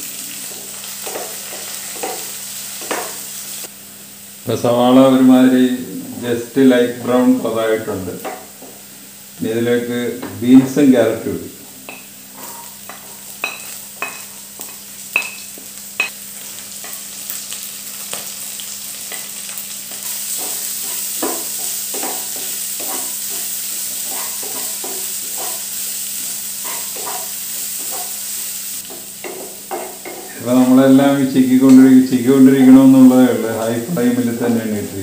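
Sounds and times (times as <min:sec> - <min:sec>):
vegetables sizzling in hot oil: 0:00.0 - 0:35.0
spoon scraping a pan: 0:00.5 - 0:03.2, 0:11.9 - 0:16.1, 0:19.1 - 0:30.4.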